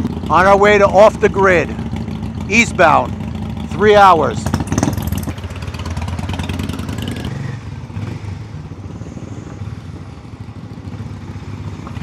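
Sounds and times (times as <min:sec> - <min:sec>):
motorcycle engine pulling away: 0:00.0 - 0:12.0
rattling clatter: 0:04.4 - 0:05.8.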